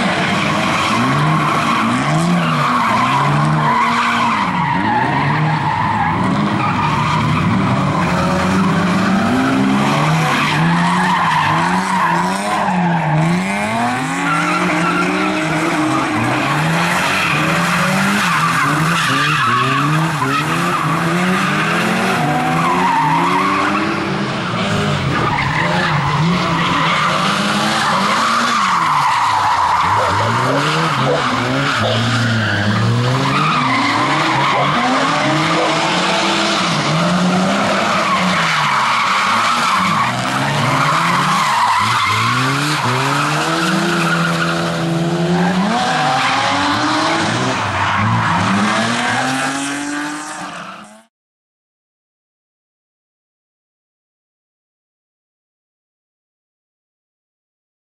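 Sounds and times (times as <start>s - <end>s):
tyres squealing and skidding: 0.0s - 51.1s
car engine revving hard: 29.9s - 51.1s.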